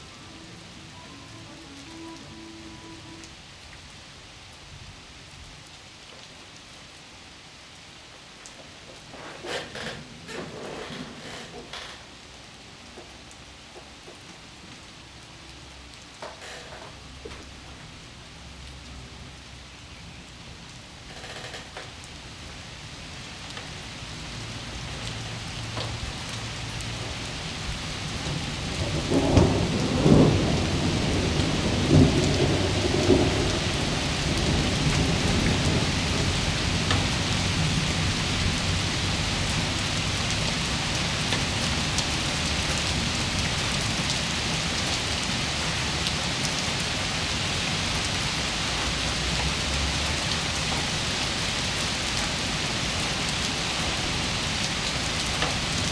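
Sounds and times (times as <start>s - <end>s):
steady rain: 0.0s - 55.9s
thunder rumbling: 25.9s - 45.8s.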